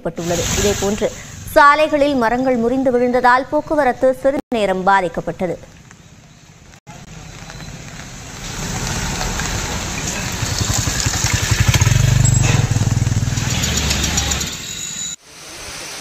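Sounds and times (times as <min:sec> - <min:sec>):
outdoor hiss: 0:00.0 - 0:02.6, 0:15.2 - 0:16.0
motorcycle engine running: 0:06.9 - 0:14.8.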